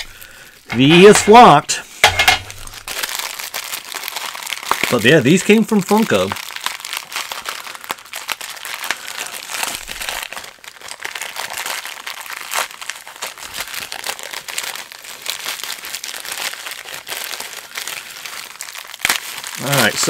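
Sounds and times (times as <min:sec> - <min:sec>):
plastic packaging crinkling: 0:00.0 - 0:20.0.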